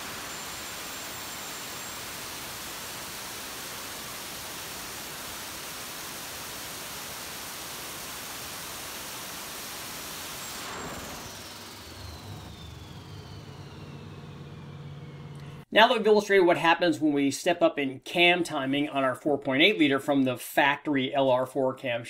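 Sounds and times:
turbo whine falling in pitch: 0:00.0 - 0:15.6
engine roaring under load: 0:10.4 - 0:15.7.

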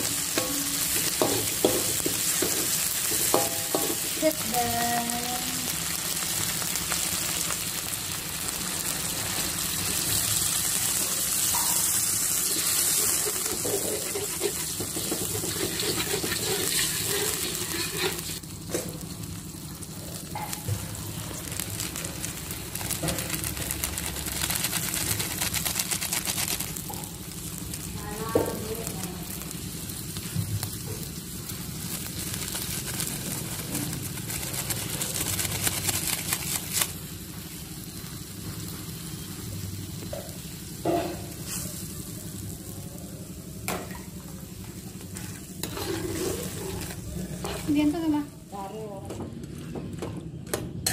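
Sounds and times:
metal spatula stirring in wok: 0:00.0 - 0:04.2, 0:11.4 - 0:18.5, 0:45.2 - 0:48.0
paste sizzling in hot oil: 0:00.0 - 0:48.3
sauce cooking quietly: 0:00.0 - 0:50.4.

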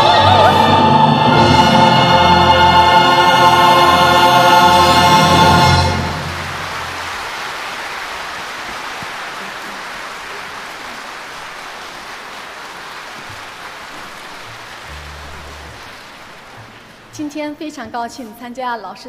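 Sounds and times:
audience applause: 0:04.6 - 0:17.2.

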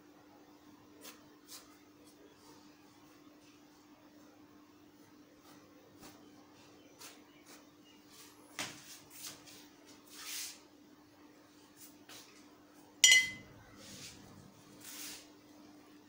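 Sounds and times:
ringing clink: 0:13.0 - 0:13.5.

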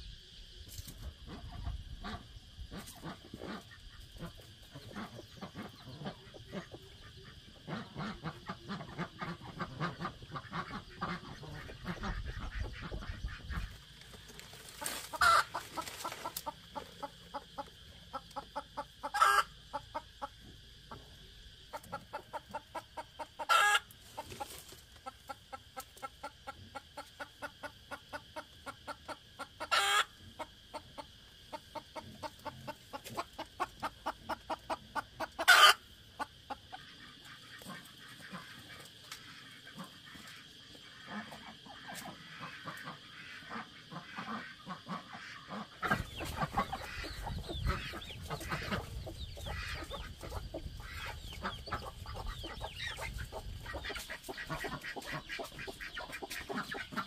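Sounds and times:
chickens clucking: 0:00.4 - 0:57.0.

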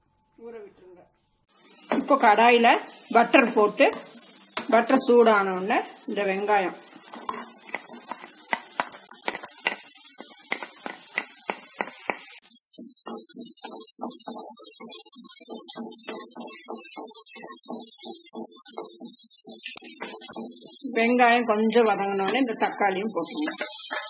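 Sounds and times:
onion sizzling in butter: 0:01.5 - 0:24.0
wooden spatula scraping pan: 0:07.0 - 0:09.9, 0:12.8 - 0:24.0.

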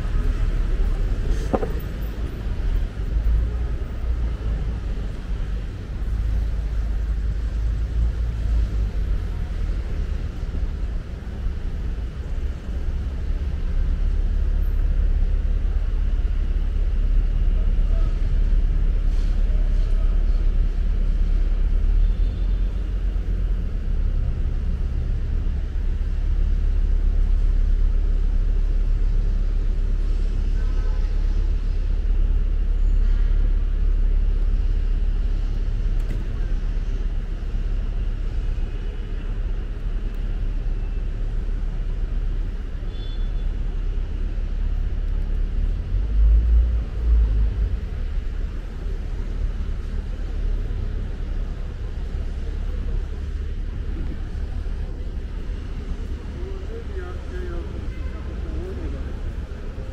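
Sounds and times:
road traffic rumble: 0:00.0 - 0:59.9
faint voices: 0:47.8 - 0:59.9.

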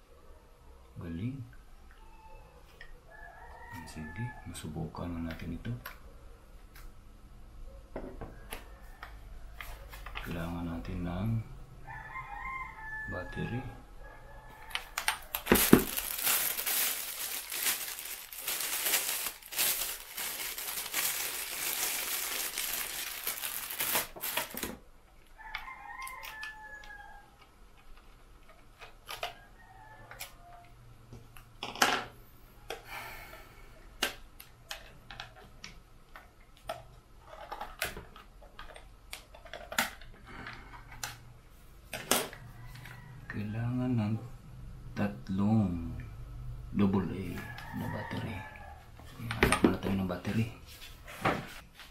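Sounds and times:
rooster crowing: 0:02.0 - 0:04.7, 0:08.2 - 0:09.9, 0:11.8 - 0:17.0, 0:25.4 - 0:27.4, 0:29.3 - 0:30.8, 0:42.3 - 0:43.6, 0:47.1 - 0:49.2
plastic packaging crinkling: 0:15.0 - 0:24.8.

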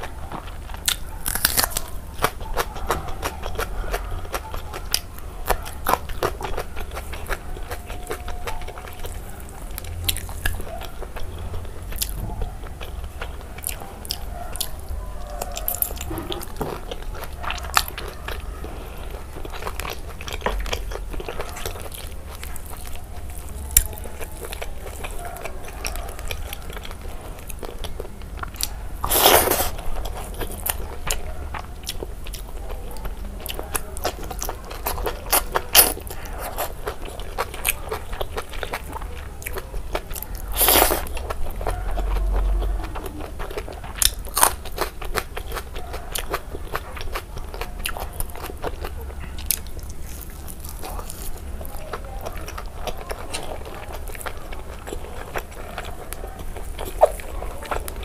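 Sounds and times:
crunchy bites: 0:00.0 - 0:58.0
wet chewing: 0:00.0 - 0:58.0.

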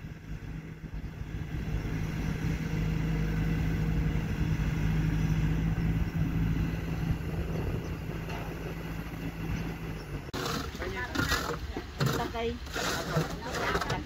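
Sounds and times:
excavator diesel engine rumbling: 0:00.0 - 0:14.0.

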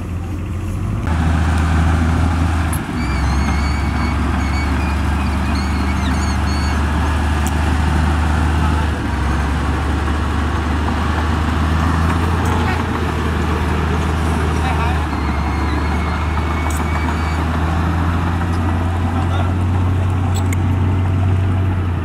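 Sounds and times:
bulldozer diesel engine drone: 0:00.0 - 0:22.0
faint short high squeaks: 0:02.8 - 0:06.8.

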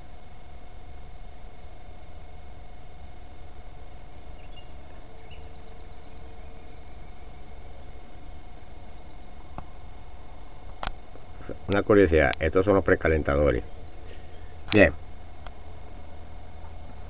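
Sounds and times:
faint steady hum: 0:00.0 - 0:17.0
low steady rumble: 0:00.0 - 0:17.0
bird chirps and trills: 0:02.6 - 0:10.6, 0:11.8 - 0:17.0.

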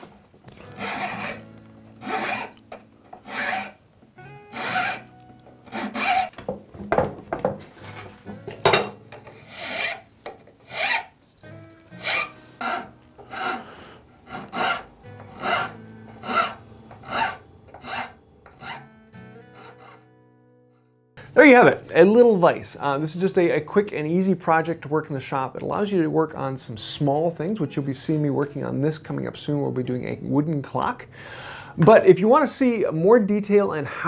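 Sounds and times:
hand file rasping wood: 0:00.6 - 0:02.6, 0:03.2 - 0:03.8, 0:04.5 - 0:06.4, 0:09.4 - 0:11.1, 0:12.0 - 0:18.9, 0:19.6 - 0:20.0.

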